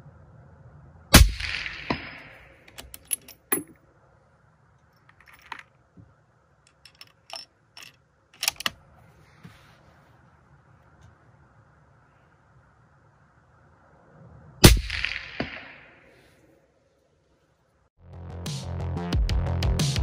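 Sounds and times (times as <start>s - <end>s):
suppressed rifle shot: 14.6s - 16.0s.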